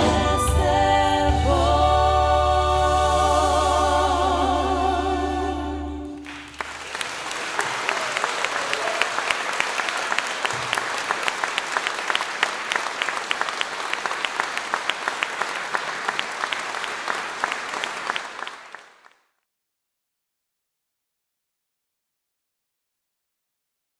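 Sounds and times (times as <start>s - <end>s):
audience applauding: 6.2s - 19.2s.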